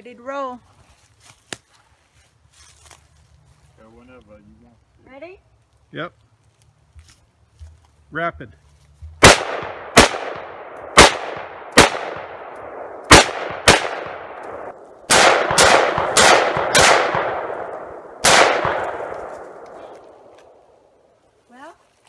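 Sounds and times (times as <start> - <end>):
rifle shots with echo: 9.2 - 20.6.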